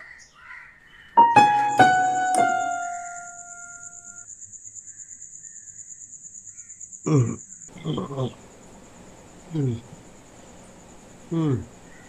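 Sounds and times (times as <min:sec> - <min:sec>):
crickets chirping: 0:01.1 - 0:12.0
piano notes: 0:01.2 - 0:04.2.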